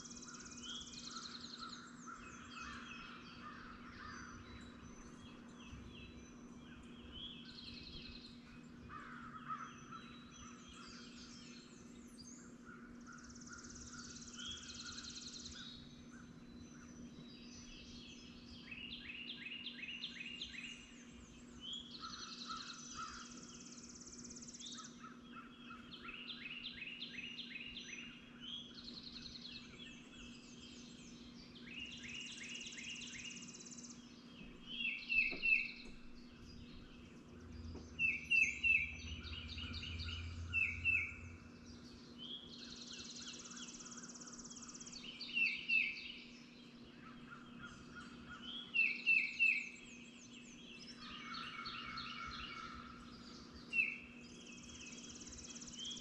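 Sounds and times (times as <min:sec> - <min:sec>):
birds singing trills: 0:00.0 - 0:56.0
harsh bird calls: 0:29.7 - 0:46.2, 0:50.9 - 0:56.0.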